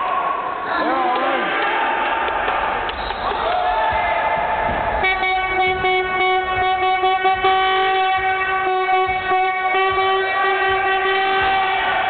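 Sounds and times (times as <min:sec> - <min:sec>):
metal horn long held note: 0:05.0 - 0:12.0.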